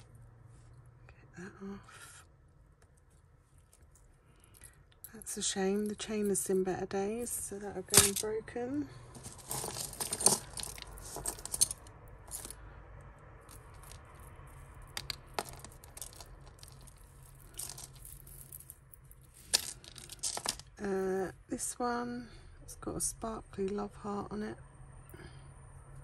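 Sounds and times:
metal jewellery chains clinking: 7.2 - 8.4, 9.1 - 12.6, 13.4 - 20.8.

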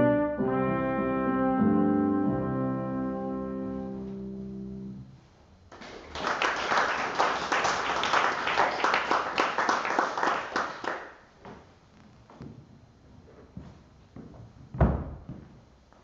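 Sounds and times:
brass and keyboard chord: 0.0 - 5.1
congregation applauding: 5.7 - 11.2.

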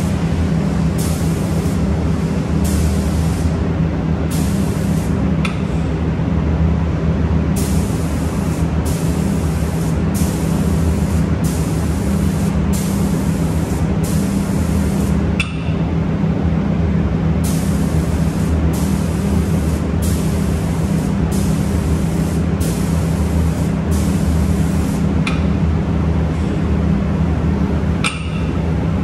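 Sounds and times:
spray gun hissing in bursts: 0.0 - 3.6, 4.3 - 5.2, 7.6 - 15.3, 17.4 - 25.4
steady low machine hum: 0.0 - 29.0.

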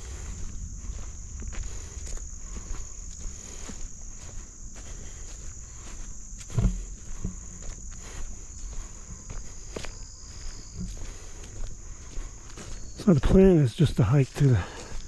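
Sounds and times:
footsteps on a trail: 0.0 - 15.0
high-pitched insect chorus: 0.0 - 15.0.

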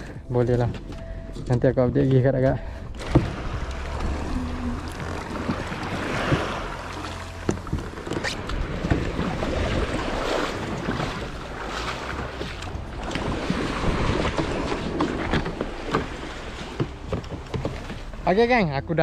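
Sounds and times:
water splashing around kayak: 0.0 - 19.0
wind buffeting microphone: 7.7 - 17.1
knocks and clicks: 14.1 - 18.2.

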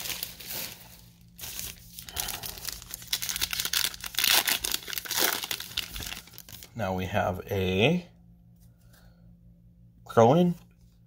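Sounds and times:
plastic wrapper crinkling: 0.0 - 6.7.

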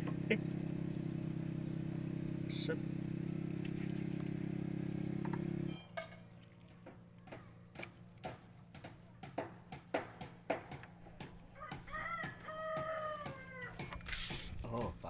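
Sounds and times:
low engine hum: 0.0 - 8.6.

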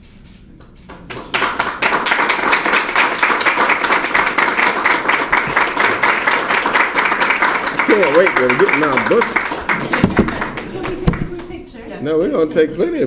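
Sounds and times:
audience applauding: 0.9 - 11.6.

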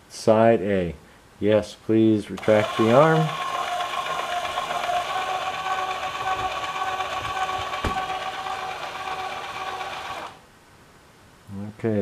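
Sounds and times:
electric actuator whining: 2.4 - 10.4.

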